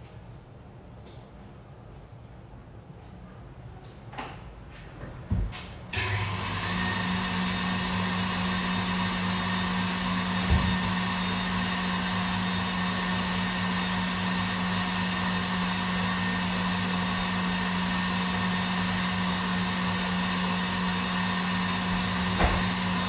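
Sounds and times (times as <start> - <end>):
electric mixer motor humming: 6.0 - 23.0.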